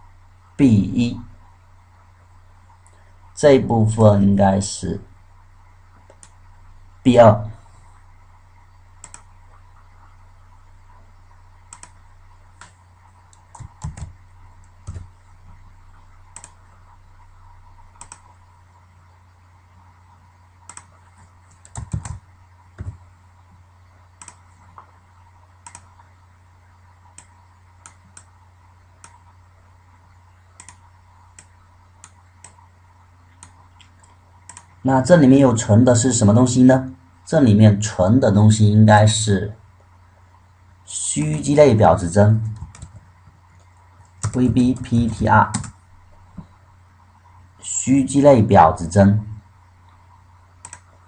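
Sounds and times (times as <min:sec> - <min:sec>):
faint low hum: 0:00.0 - 0:51.0
mouse clicks: 0:06.0 - 0:06.4, 0:09.0 - 0:09.3, 0:11.7 - 0:12.0, 0:16.3 - 0:16.6, 0:17.9 - 0:18.4, 0:20.6 - 0:22.2, 0:24.2 - 0:25.0, 0:25.6 - 0:26.1, 0:27.1 - 0:28.4, 0:29.0 - 0:29.4, 0:30.5 - 0:32.7, 0:33.3 - 0:34.8, 0:50.6 - 0:51.0
computer keyboard keystrokes: 0:09.0 - 0:09.3, 0:11.7 - 0:12.0, 0:12.6 - 0:14.2, 0:14.8 - 0:15.1, 0:16.3 - 0:16.6, 0:18.0 - 0:18.3, 0:20.7 - 0:22.2, 0:22.8 - 0:23.0, 0:24.2 - 0:24.4, 0:25.6 - 0:26.0, 0:30.6 - 0:30.8, 0:42.5 - 0:43.0, 0:44.2 - 0:44.4, 0:45.5 - 0:45.8, 0:50.6 - 0:50.9.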